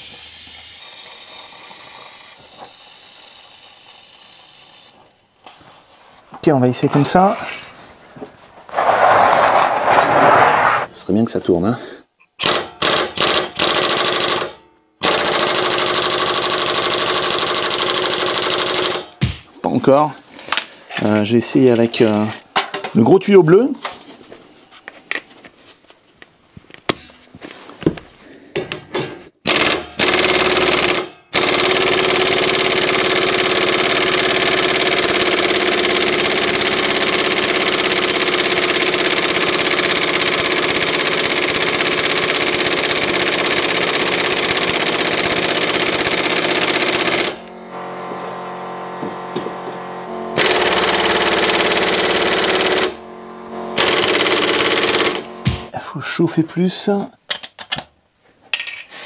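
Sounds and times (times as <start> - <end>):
pneumatic impact wrench hammering: 0.0 - 5.2, 12.4 - 19.5, 29.4 - 47.6, 50.4 - 53.0, 53.8 - 55.8.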